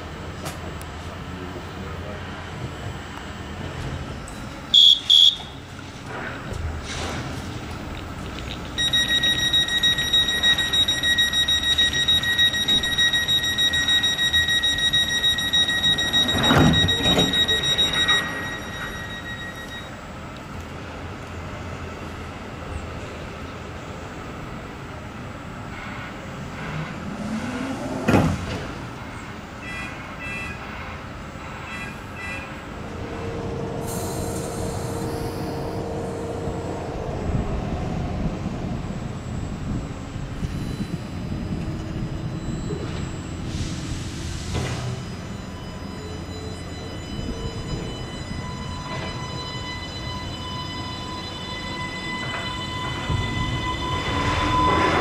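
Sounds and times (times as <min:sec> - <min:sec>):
train steady hum: 0:00.0 - 0:55.0
pulsing electronic door alarm: 0:08.8 - 0:20.0, 0:40.4 - 0:55.0
sliding door thud: 0:16.2 - 0:17.4.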